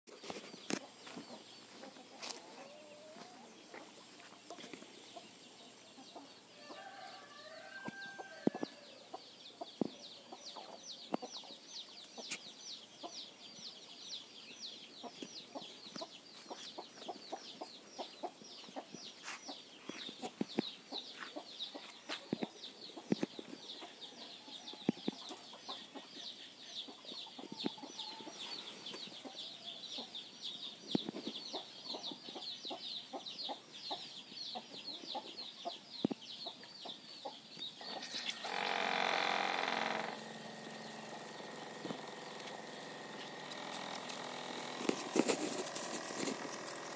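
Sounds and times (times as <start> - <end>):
chickens clucking: 0.1 - 6.8, 8.2 - 13.3, 15.0 - 38.6, 39.3 - 46.9
chicks peeping: 0.1 - 46.9
sharp ticks: 38.2 - 46.9.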